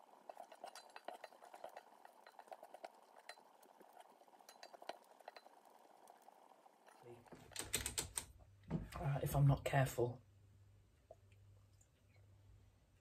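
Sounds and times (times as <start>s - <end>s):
spatula clinking and scraping pan: 0.0s - 5.8s
nuts crackling in frying oil: 0.0s - 8.2s.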